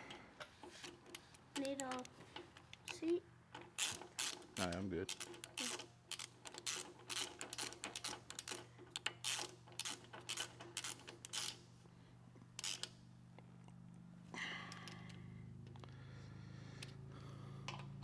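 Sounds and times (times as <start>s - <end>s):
ratchet clicking: 3.6s - 11.6s, 12.6s - 13.0s.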